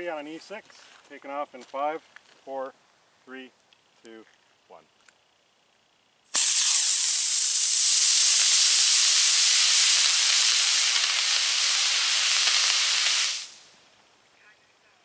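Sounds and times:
rocket motor hissing: 6.3 - 13.8.

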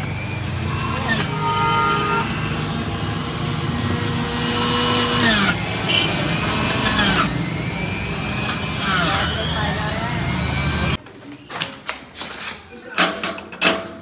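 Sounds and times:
passing vehicles rumble: 0.0 - 11.0.

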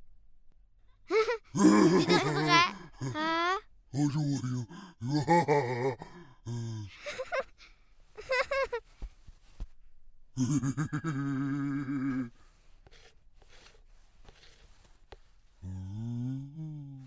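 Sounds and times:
cartoon voice chuckling: 1.1 - 3.6
voice speaking: 1.6 - 4.7.

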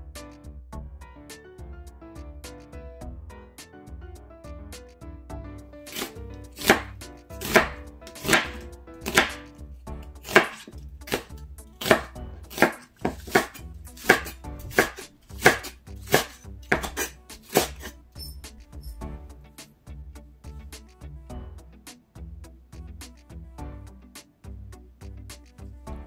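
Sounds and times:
knife chopping on wooden board: 5.9 - 9.5, 10.1 - 17.9.

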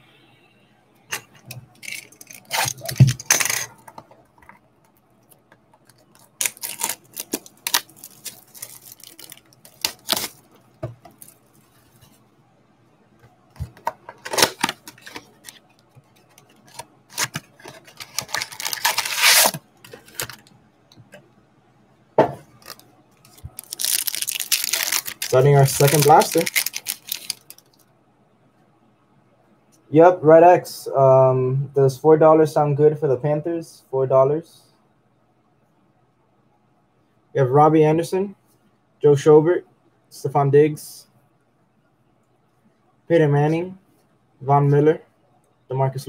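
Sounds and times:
wrapped packs rustling: 6.1 - 10.4, 14.2 - 20.5, 22.6 - 27.7.

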